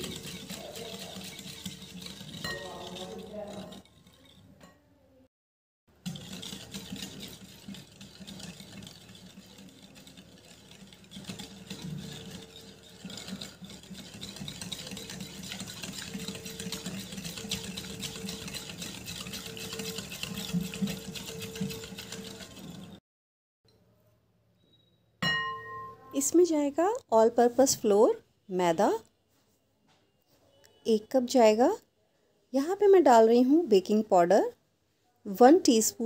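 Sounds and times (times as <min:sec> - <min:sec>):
liquid sloshing: 0:00.0 - 0:04.4, 0:06.0 - 0:23.0
whisk rattling in glass bowl: 0:00.0 - 0:04.6, 0:06.0 - 0:23.0.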